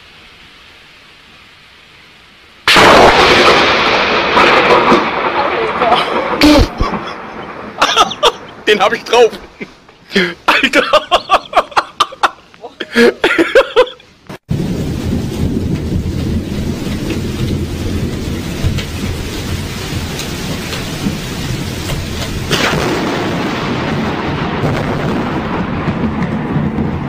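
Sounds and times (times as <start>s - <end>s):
steady rain: 0.0s - 27.0s
sharp thunder crack: 2.6s - 9.6s, 14.4s - 27.0s
thunder rumbling: 2.6s - 9.7s, 10.5s - 12.4s, 14.5s - 27.0s.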